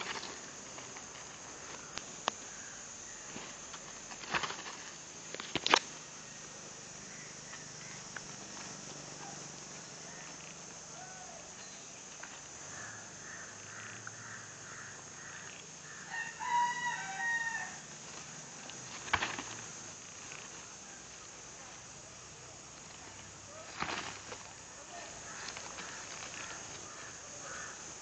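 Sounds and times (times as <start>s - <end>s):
rooster crowing: 15.8s - 17.9s.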